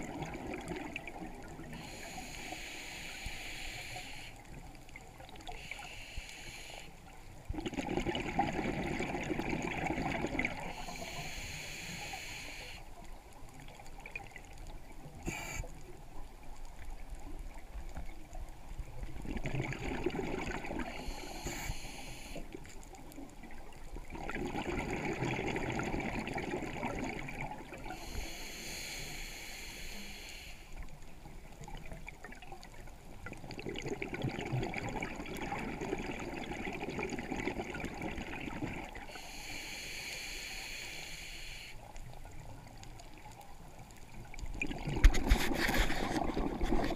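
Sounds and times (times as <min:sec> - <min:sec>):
exhaled bubbles bubbling: 0:00.0 - 0:02.0, 0:07.4 - 0:11.0, 0:18.1 - 0:21.2, 0:22.6 - 0:28.0, 0:31.5 - 0:39.2, 0:42.1 - 0:46.9
regulator inhalation hiss: 0:01.7 - 0:04.5, 0:05.6 - 0:07.0, 0:10.7 - 0:12.9, 0:15.2 - 0:15.8, 0:20.9 - 0:22.5, 0:27.9 - 0:30.8, 0:39.1 - 0:41.9.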